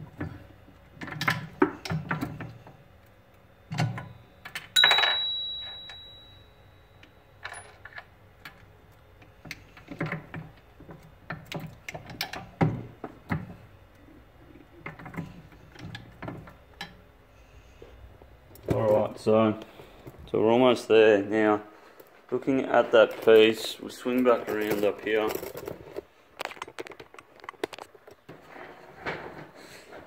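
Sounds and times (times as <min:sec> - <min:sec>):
ringing metal clink: 0:04.8 - 0:07.7.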